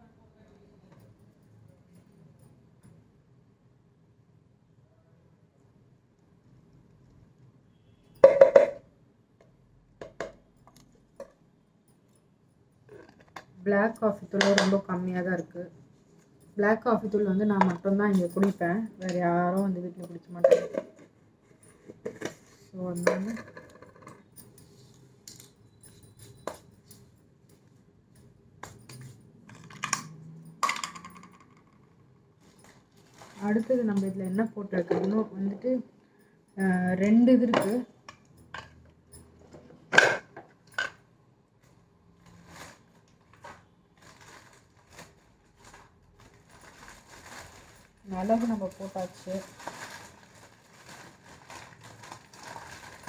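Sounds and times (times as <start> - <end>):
glass jars clinking: 17.6 - 21.0, 28.6 - 31.6.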